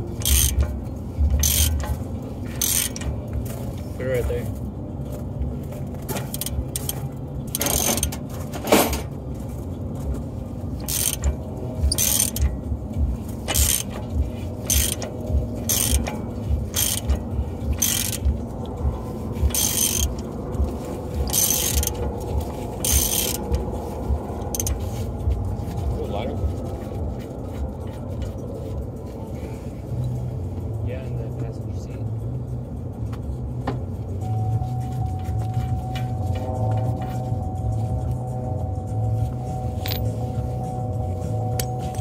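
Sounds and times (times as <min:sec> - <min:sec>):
low rhythmic pulsing: 0:00.0 - 0:08.4, 0:09.1 - 0:42.0
ratchet wrench clicking: 0:00.1 - 0:03.3, 0:06.2 - 0:08.2, 0:10.8 - 0:23.7, 0:24.4 - 0:25.1, 0:39.8 - 0:40.6.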